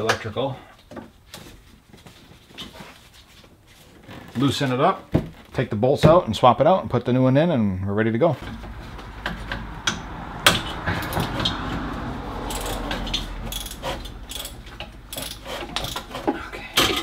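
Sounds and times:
metal taps and knocks: 8.4 - 11.7
ratchet wrench clicking: 12.5 - 16.1.

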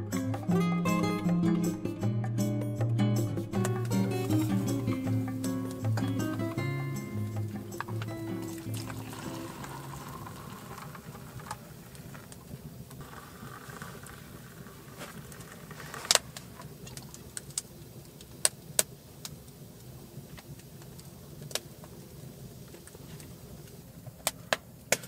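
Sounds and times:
metal mugs clinking: 3.9 - 11.6.

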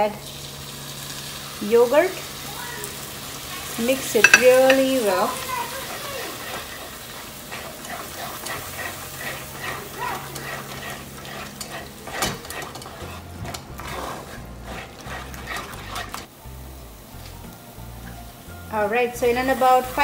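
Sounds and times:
wooden spatula scraping pan: 3.6 - 16.3.

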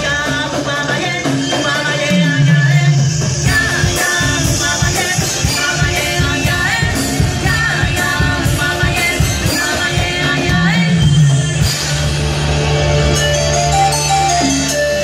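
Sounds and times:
person singing: 0.0 - 11.1
drum kit beat: 0.0 - 15.0
live band playing: 0.0 - 15.0.

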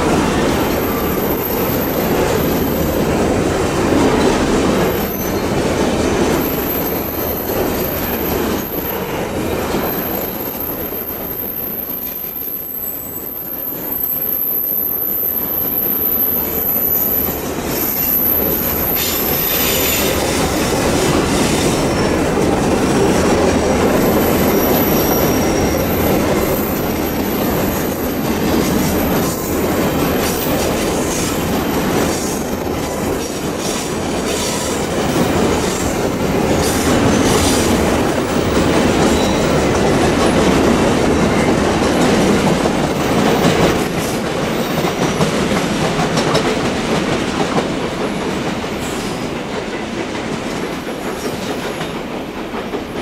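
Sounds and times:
train wheels rumbling on rails: 0.0 - 53.0
high-pitched wheel squeal: 24.2 - 28.0.

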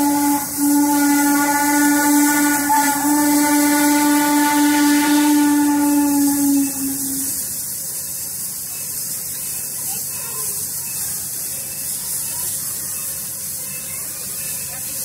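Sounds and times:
steam locomotive whistle: 0.0 - 7.6
steady high hiss: 0.0 - 15.0.

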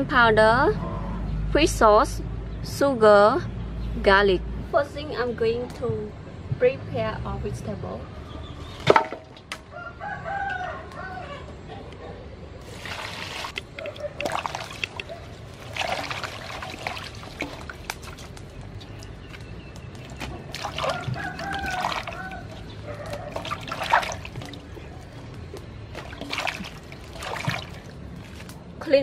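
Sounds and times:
rooster crowing: 9.7 - 11.5, 20.8 - 23.3
water pouring into metal basin: 12.6 - 19.2, 20.0 - 25.1, 25.9 - 28.6
water sloshing and splashing: 12.6 - 28.9.

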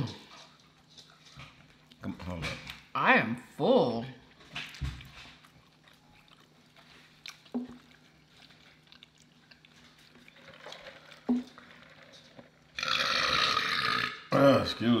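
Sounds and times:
low steady hum: 0.0 - 13.0
eating mouth sounds: 4.6 - 14.2.

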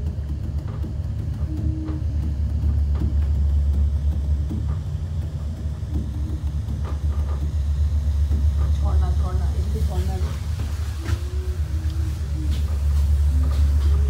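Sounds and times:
cable car cabin rumble: 0.0 - 14.0.

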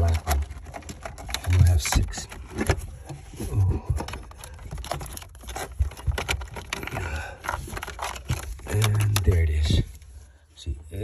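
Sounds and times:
plastic parts clicking and scraping: 0.0 - 10.2.

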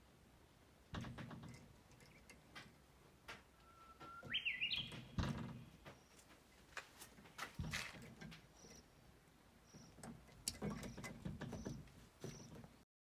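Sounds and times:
dull thumps: 0.9 - 6.4, 7.0 - 8.7.

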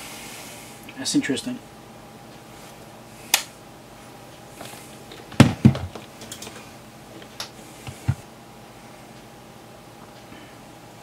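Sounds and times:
knocks on metal chassis: 5.4 - 6.0.

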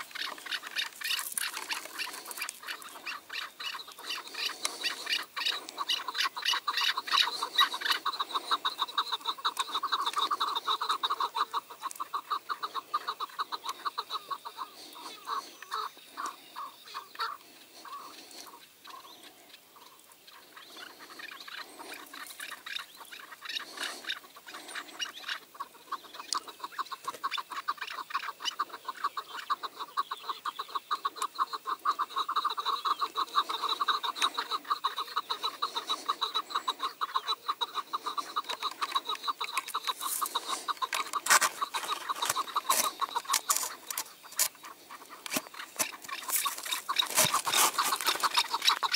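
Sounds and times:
partridges clucking: 32.4 - 48.9.

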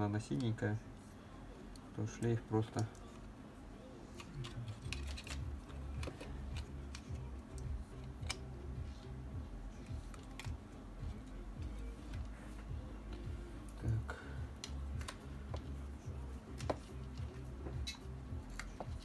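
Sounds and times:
low steady background noise: 0.0 - 19.0
plastic parts clicking and tapping: 4.2 - 8.4, 16.6 - 19.0.

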